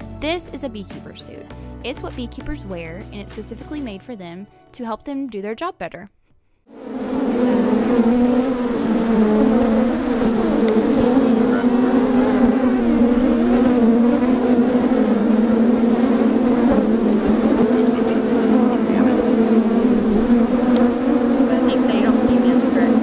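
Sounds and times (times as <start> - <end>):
bees buzzing: 6.8 - 23.0.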